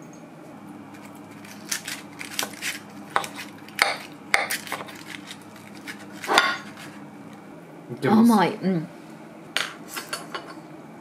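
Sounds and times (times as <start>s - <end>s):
knife scraping foil and dish: 1.0s - 7.0s.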